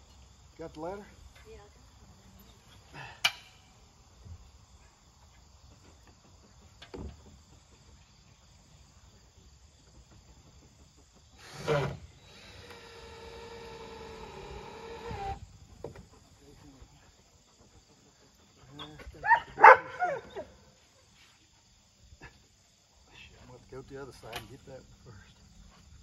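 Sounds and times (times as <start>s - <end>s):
cordless drill driving a screw: 11.4s - 15.4s.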